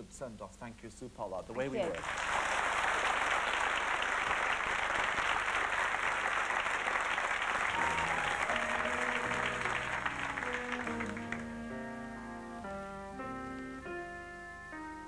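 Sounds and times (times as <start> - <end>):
studio audience applauding: 1.8 - 11.8
musical introduction with long held notes: 7.6 - 15.0.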